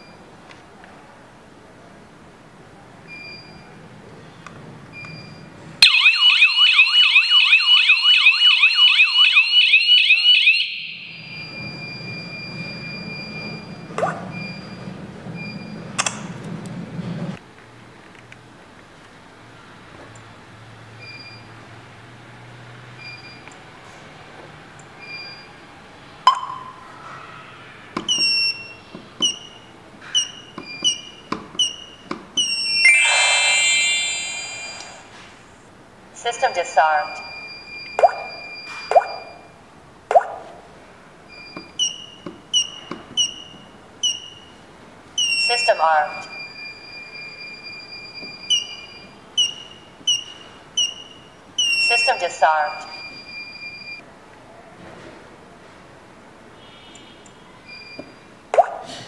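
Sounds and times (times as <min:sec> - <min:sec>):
warbling alarm siren: 0:05.8 - 0:14.7, 0:32.4 - 0:35.2
touch-screen beep: 0:10.7 - 0:14.8, 0:26.3 - 0:26.8, 0:30.2 - 0:35.0, 0:37.1 - 0:39.6
keypad beeps: 0:26.3 - 0:26.8, 0:28.1 - 0:29.6, 0:30.2 - 0:34.8, 0:41.4 - 0:44.6, 0:45.2 - 0:52.2
faint steady high tone: 0:32.8 - 0:35.1.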